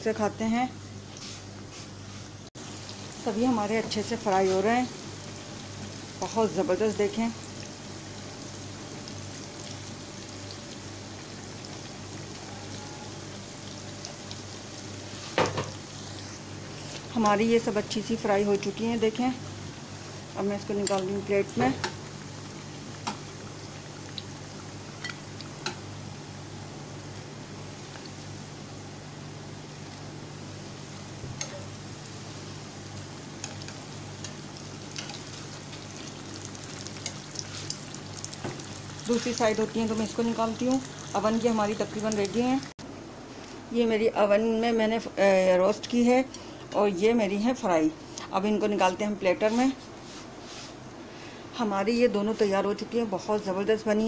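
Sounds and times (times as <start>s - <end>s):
food sizzling in hot oil: 2.4s - 42.8s.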